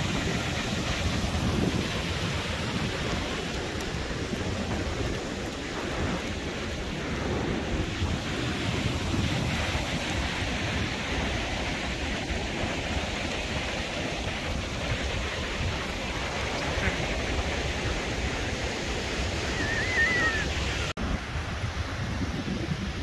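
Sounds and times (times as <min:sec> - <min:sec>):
ocean surf on a beach: 0:00.0 - 0:23.0
wind rumbling on microphone: 0:00.0 - 0:23.0
wavering high-pitched call: 0:19.5 - 0:20.6.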